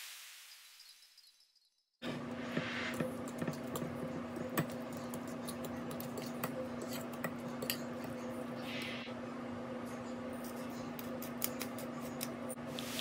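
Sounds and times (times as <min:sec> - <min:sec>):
fork scraping a bowl: 0:02.4 - 0:08.6.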